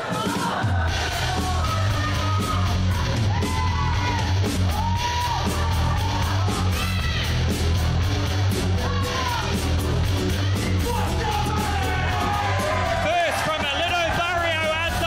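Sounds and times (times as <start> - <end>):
rock song with shouted vocals: 0.0 - 7.7, 8.6 - 15.0.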